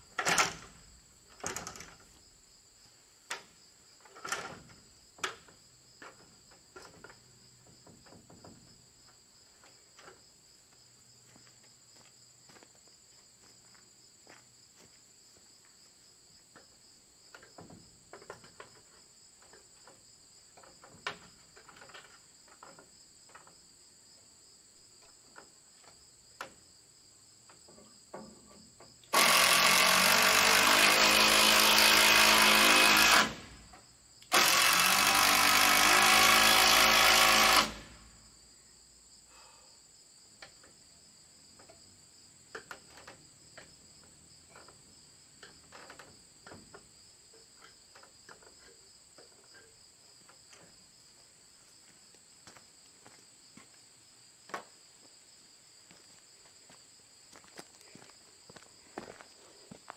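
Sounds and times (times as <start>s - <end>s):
crickets chirping: 0.0s - 59.9s
power drill driving fastener: 29.1s - 38.1s.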